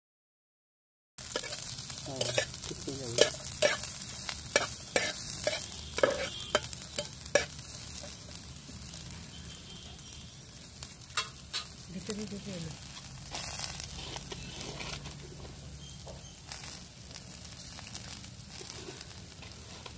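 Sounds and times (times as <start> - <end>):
metal spatula scraping pan: 1.2 - 8.2, 12.8 - 15.9
onions sizzling in oil: 1.2 - 19.9.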